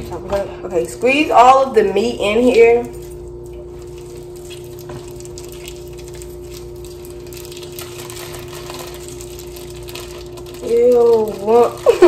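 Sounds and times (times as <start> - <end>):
steady hum: 0.0 - 12.0
plastic packaging crinkling: 3.1 - 12.0.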